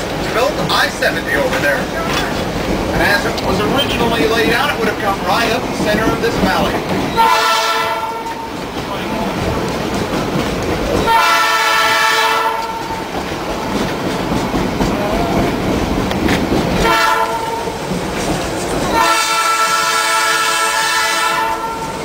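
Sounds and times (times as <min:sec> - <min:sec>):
train rumble and clatter: 0:00.0 - 0:22.0
train horn blasts: 0:07.2 - 0:08.5, 0:11.1 - 0:13.0, 0:16.8 - 0:17.8, 0:18.9 - 0:22.0.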